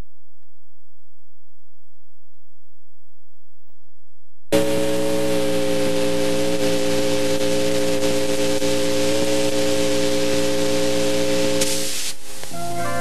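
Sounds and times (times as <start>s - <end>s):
tape hiss: 0.0s - 13.0s
sustained organ chord: 12.5s - 13.0s.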